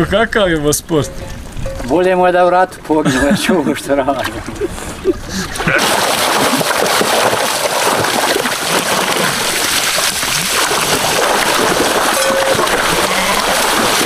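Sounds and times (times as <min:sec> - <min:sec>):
sheep splashing through water: 0:05.4 - 0:14.0.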